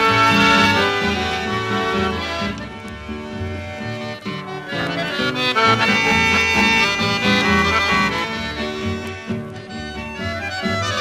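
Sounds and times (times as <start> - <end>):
button accordion melody: 0.0 - 11.0
rhythmic bass line: 4.3 - 9.3.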